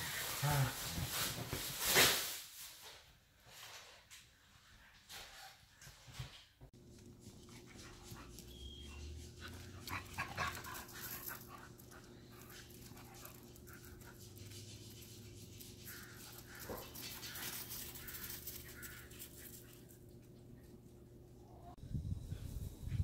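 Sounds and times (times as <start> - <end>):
dogs panting: 7.0 - 20.6.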